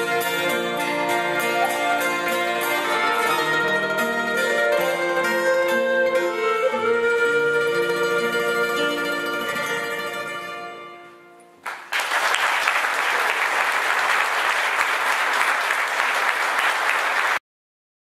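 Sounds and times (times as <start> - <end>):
audience applause: 11.6 - 17.4.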